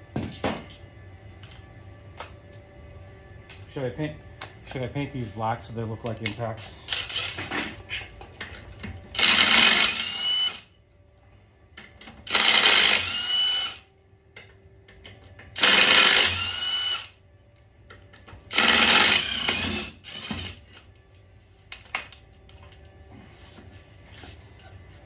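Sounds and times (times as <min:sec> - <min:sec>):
impact wrench whirring: 0:06.9 - 0:07.4, 0:09.2 - 0:10.6, 0:12.3 - 0:13.8, 0:15.6 - 0:17.2, 0:18.5 - 0:20.7.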